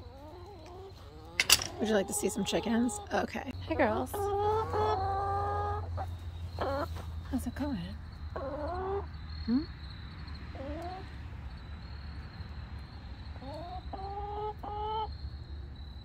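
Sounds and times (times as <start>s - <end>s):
hens clucking and calling: 0.0s - 7.0s, 8.4s - 9.1s, 10.5s - 11.1s, 13.4s - 15.1s.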